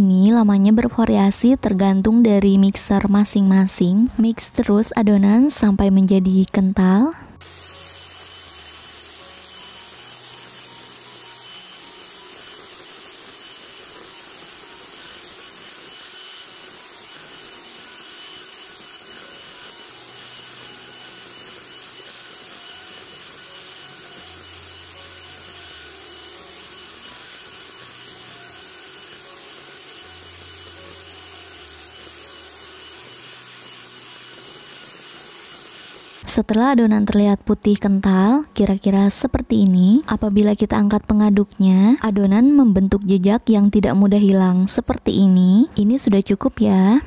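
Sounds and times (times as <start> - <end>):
electric hand mixer whirring: 7.4 - 39.4.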